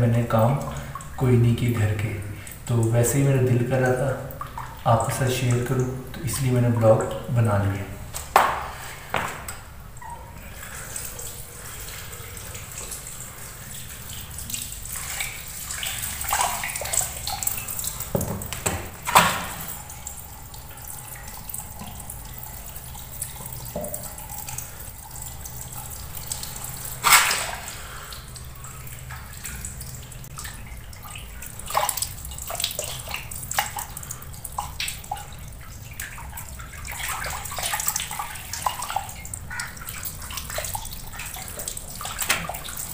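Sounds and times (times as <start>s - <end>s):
tap water running: 0.0s - 42.9s
water splashing on chicken: 8.2s - 9.6s, 26.3s - 30.6s
sharp knocks: 8.3s - 9.5s.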